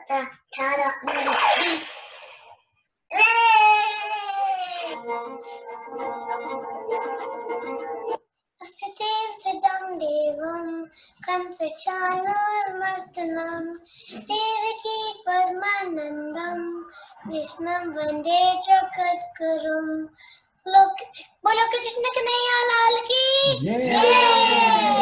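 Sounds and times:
boy singing unaccompanied: 8.6s - 25.0s.

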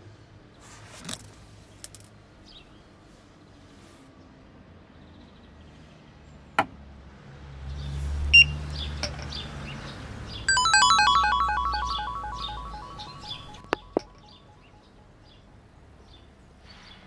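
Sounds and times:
rapid electronic beeps jingle: 10.5s - 14.3s
short high beep: 10.5s - 14.6s.

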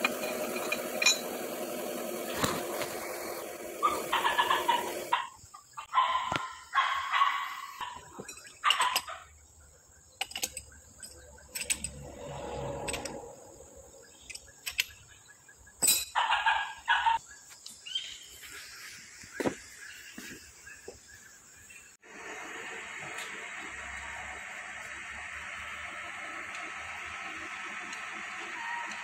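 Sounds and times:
chicken calls: 3.8s - 9.2s, 16.2s - 17.2s
metallic clinks and knocks: 10.2s - 12.1s, 15.8s - 16.2s.

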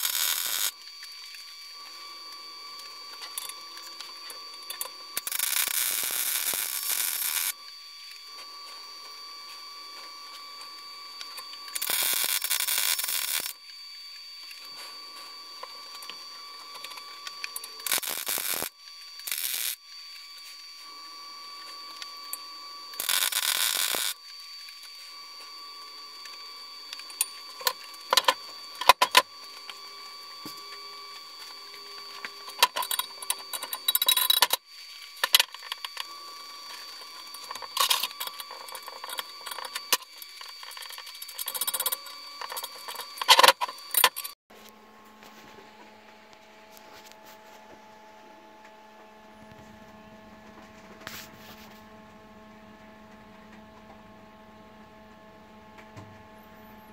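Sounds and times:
welder arcing: 0.0s - 8.4s, 11.1s - 21.0s, 21.6s - 25.1s, 25.8s - 44.4s
faint steady whine: 0.0s - 56.9s.

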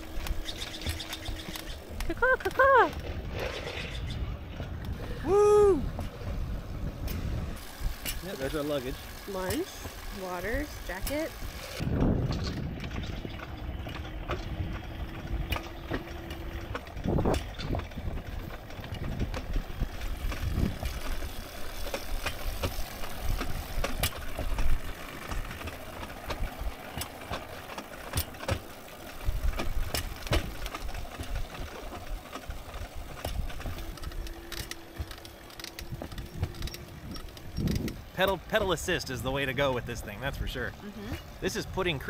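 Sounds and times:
clicks and clacks from rails: 0.0s - 4.0s, 11.0s - 38.6s
steel wheels rolling on rails: 0.0s - 42.0s.

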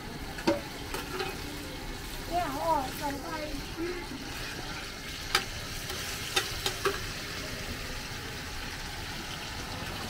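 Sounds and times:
food sizzling on griddle: 0.0s - 10.0s
metal spatulas clinking on pan: 0.4s - 1.4s, 4.4s - 7.1s.

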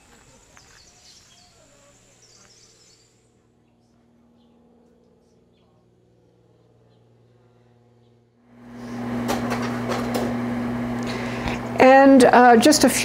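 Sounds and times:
faint low hum: 0.0s - 9.1s.

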